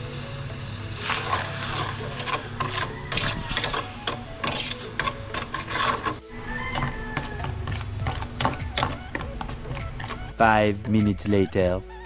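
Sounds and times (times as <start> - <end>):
metal spoon scraping a mould: 1.0 - 6.2.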